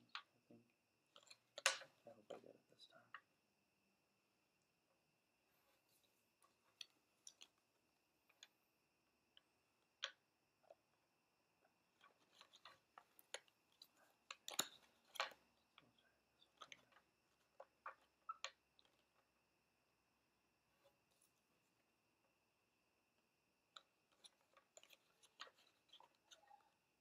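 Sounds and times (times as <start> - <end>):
playing cards clicking and snapping: 1.2 - 2.0, 12.0 - 19.2, 23.8 - 26.5.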